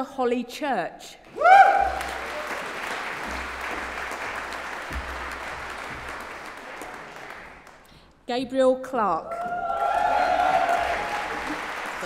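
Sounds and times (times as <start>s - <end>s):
audience applause: 1.4s - 7.9s, 9.4s - 12.0s.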